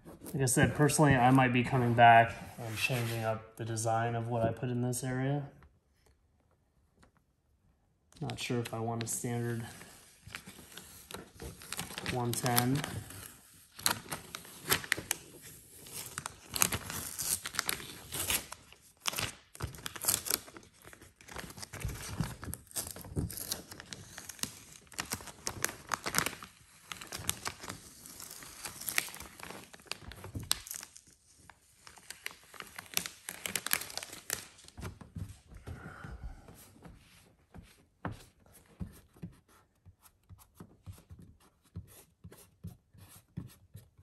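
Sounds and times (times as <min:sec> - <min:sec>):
transfer tape peeling and crinkling: 0:10.4 - 0:34.9.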